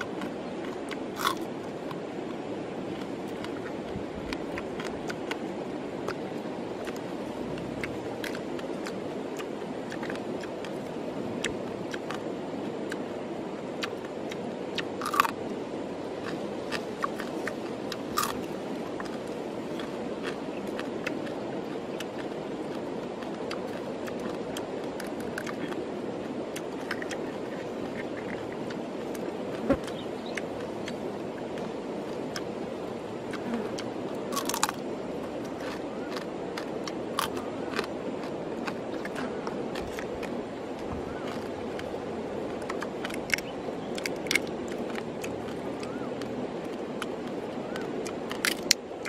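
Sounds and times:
steady rushing background noise: 0.0s - 49.0s
crab shells cracking: 48.3s - 48.8s.

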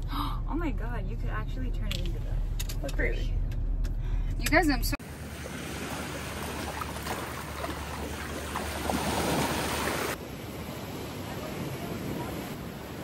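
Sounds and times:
ocean surf: 5.0s - 13.0s.

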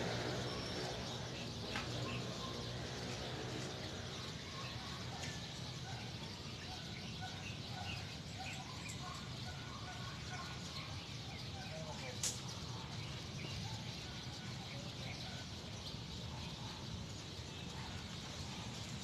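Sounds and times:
steady low hum: 0.0s - 10.5s
birds chirping: 0.0s - 19.0s.

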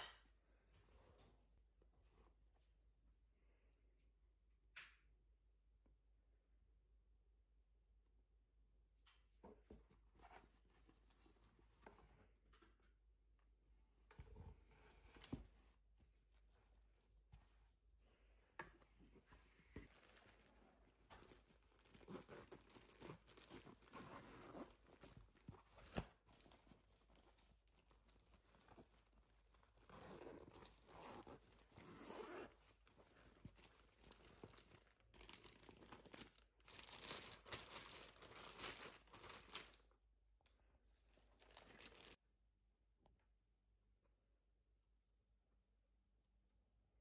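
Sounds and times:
garment bag unzipping and rustling: 21.3s - 26.5s, 29.6s - 36.2s.

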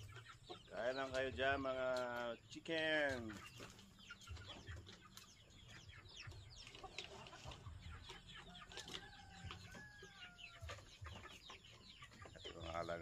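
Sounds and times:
chickens clucking: 0.0s - 13.0s.

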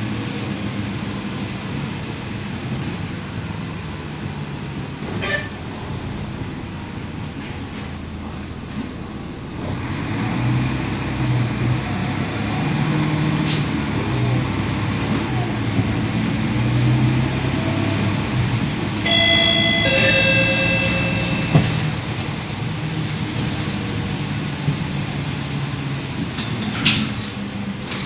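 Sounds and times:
bus engine running: 0.0s - 28.0s
road rumble: 0.0s - 28.0s
two-note falling chime: 19.1s - 22.0s.

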